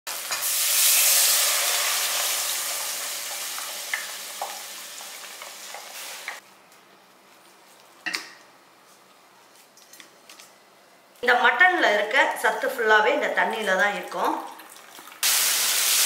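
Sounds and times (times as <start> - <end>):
food sizzling in hot oil: 0.1 - 6.4, 15.1 - 16.0.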